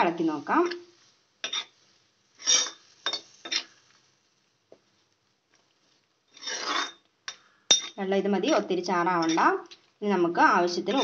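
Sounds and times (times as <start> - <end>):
ladle scraping a metal pan: 1.4 - 1.8, 2.4 - 3.8, 6.3 - 7.0.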